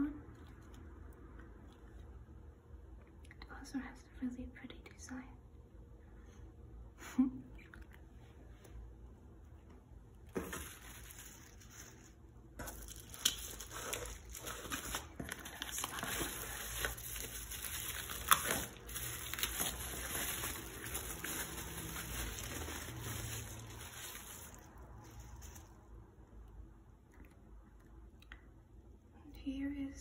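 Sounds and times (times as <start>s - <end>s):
bubble wrap rustling: 10.2s - 26.0s
bubble wrap snapping: 10.4s - 25.7s.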